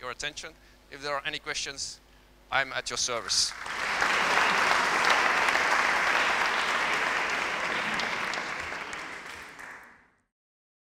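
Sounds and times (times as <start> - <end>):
audience applauding: 3.5 - 10.1.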